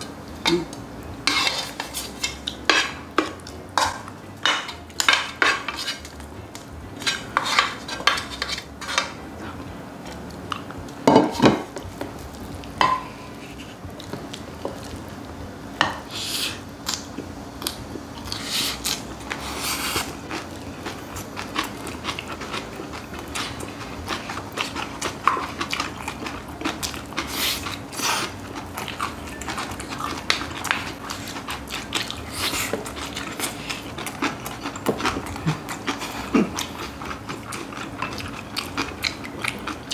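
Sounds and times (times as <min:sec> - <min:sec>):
close-up crunchy chewing: 0:16.8 - 0:39.9.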